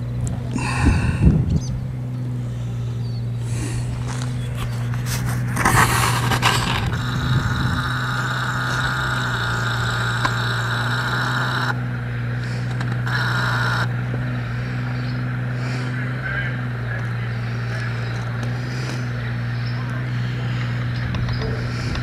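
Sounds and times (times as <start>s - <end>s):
diesel tractor engine running: 0.0s - 22.0s
steady high whine: 0.0s - 22.0s
scraping and clattering: 4.0s - 7.2s.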